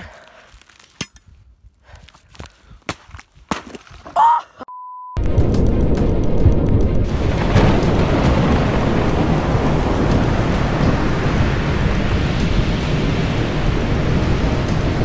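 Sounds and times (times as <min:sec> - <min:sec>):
rumble of thunder: 0:05.2 - 0:15.0
heavy rain: 0:06.2 - 0:15.0.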